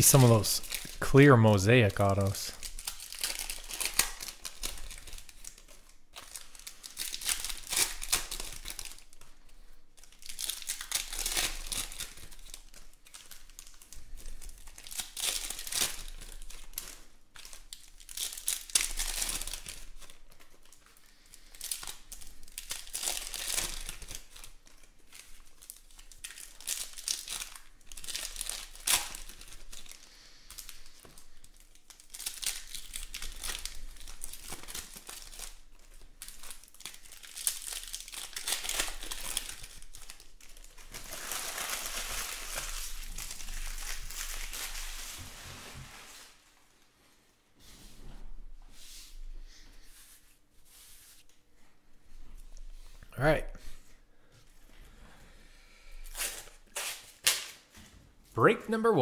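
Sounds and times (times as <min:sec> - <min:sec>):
card pack wrappers tearing: 0:00.0 - 0:09.4, 0:10.0 - 0:45.2, 0:56.1 - 0:57.7.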